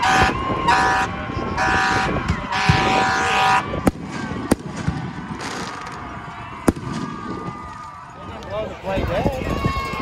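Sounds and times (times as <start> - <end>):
multi-tone horn blasts: 0.0 - 3.9
firework bangs: 1.7 - 7.8.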